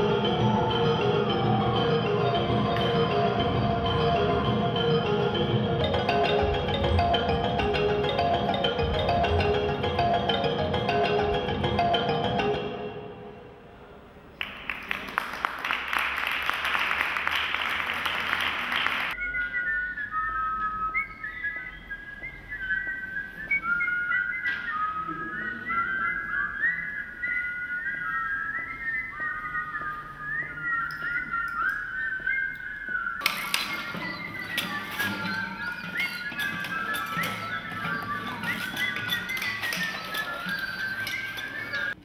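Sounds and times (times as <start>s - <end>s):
short upward whistled notes: 17.3s - 42.0s.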